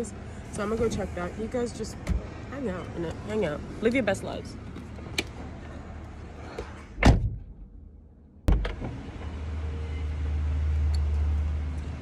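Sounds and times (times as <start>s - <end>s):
car door slamming: 6.9s - 7.7s.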